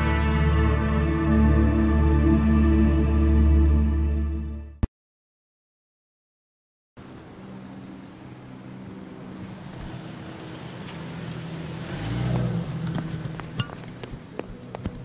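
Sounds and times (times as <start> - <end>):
car passing: 7.0 - 15.0.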